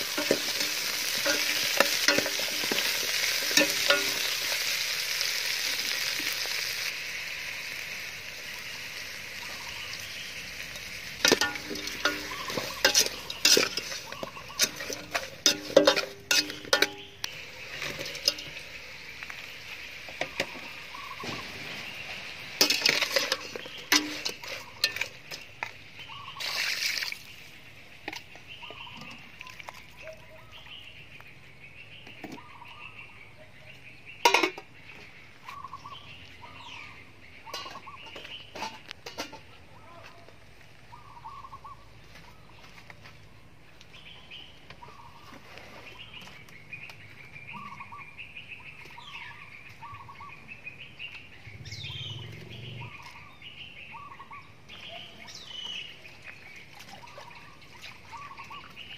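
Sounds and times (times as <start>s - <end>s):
metal utensil scraping a pot: 0.0s - 4.6s, 10.7s - 18.8s, 20.1s - 25.7s, 34.2s - 34.7s, 37.5s - 39.6s
food sizzling in a pot: 0.0s - 27.4s.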